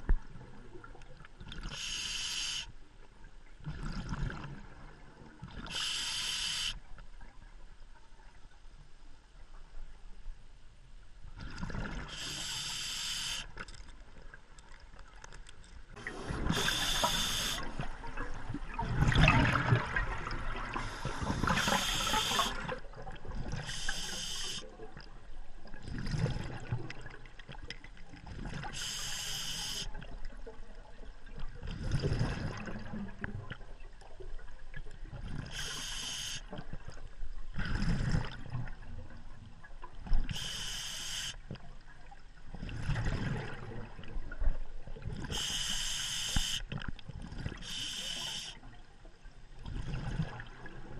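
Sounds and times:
regulator hissing inhalation: 1.7s - 2.7s, 5.7s - 6.8s, 12.2s - 13.5s, 16.2s - 17.7s, 20.8s - 22.6s, 23.6s - 24.6s, 28.8s - 29.9s, 35.5s - 36.5s, 40.3s - 41.4s, 45.3s - 46.7s, 47.6s - 48.6s.

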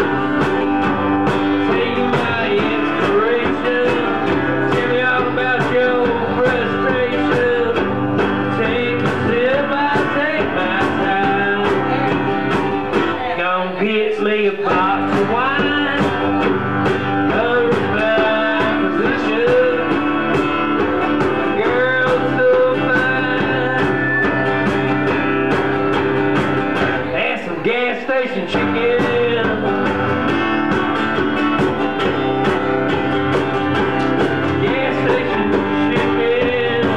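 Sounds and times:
strummed acoustic guitar: 0.0s - 36.9s
hand drum beat: 14.7s - 27.1s, 28.6s - 36.9s
wavering lead melody: 20.8s - 26.2s.

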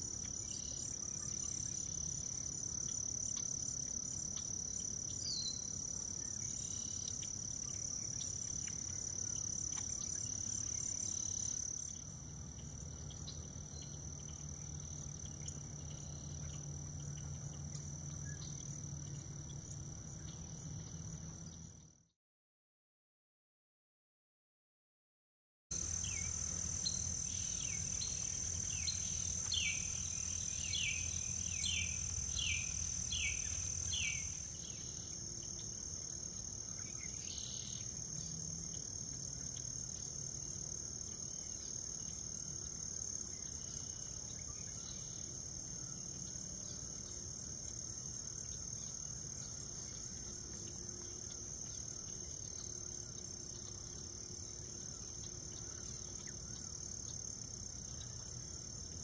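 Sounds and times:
insect high-pitched trill: 25.7s - 38.9s.

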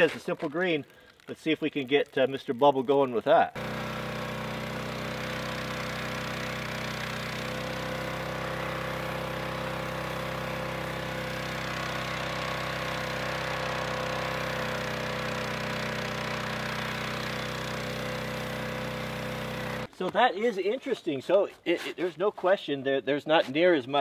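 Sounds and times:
pressure washer humming: 3.6s - 19.9s.

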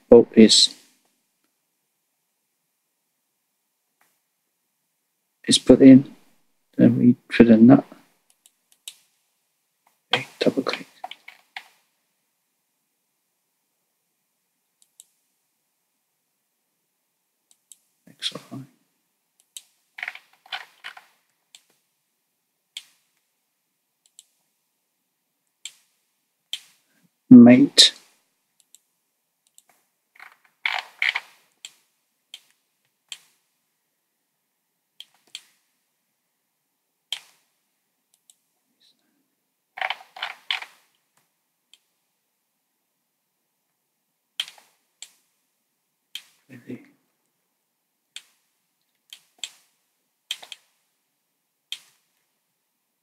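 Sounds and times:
computer mouse clicks: 8.3s - 9.1s, 14.8s - 15.2s, 19.4s - 21.8s, 22.8s - 23.2s, 24.0s - 24.4s, 28.6s - 33.4s, 35.0s - 35.6s, 37.1s - 37.4s, 44.4s - 45.2s, 48.1s - 48.4s, 49.0s - 49.7s, 50.3s - 50.8s, 51.7s - 52.2s.

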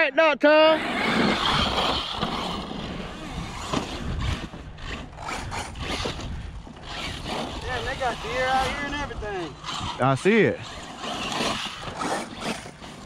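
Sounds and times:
electric rc trucks driving: 0.5s - 13.0s
tyres scrabbling through dirt: 0.8s - 13.0s
wind rumble on microphone: 1.3s - 10.0s.

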